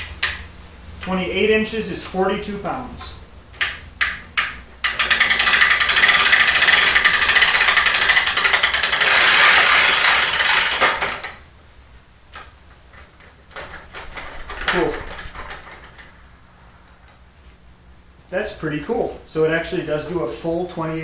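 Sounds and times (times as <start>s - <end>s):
ratchet clicking: 3.6s - 11.4s.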